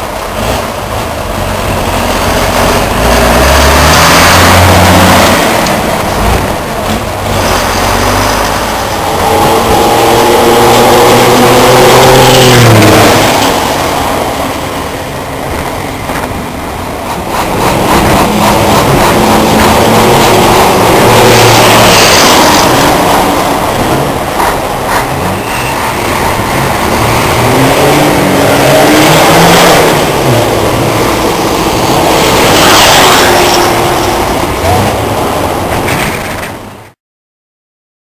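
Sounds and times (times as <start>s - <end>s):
truck diesel engines passing: 0.0s - 37.0s.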